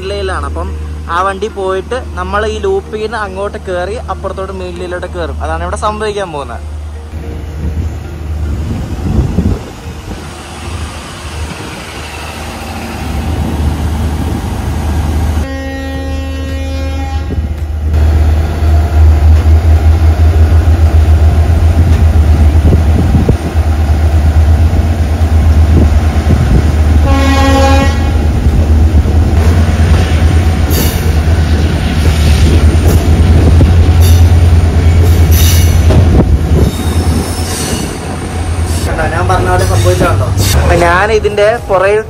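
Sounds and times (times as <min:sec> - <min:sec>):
train rumbling on track: 0:00.0 - 0:42.0
train horn blast: 0:15.4 - 0:17.6, 0:27.0 - 0:28.3.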